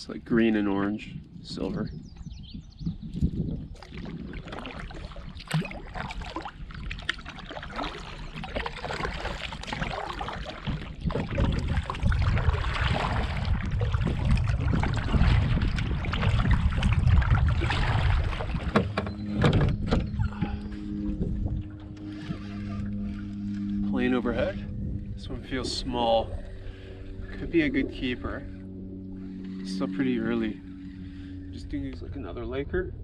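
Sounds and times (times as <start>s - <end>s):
water lapping against hull: 0.0s - 32.9s
wind rumble on microphone: 0.0s - 33.0s
paddle strokes splashing: 3.7s - 19.4s.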